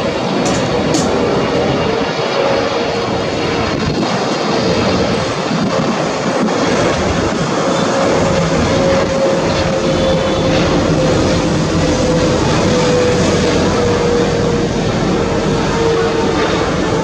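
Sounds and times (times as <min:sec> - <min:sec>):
jet airliner engines rushing: 0:00.0 - 0:17.0.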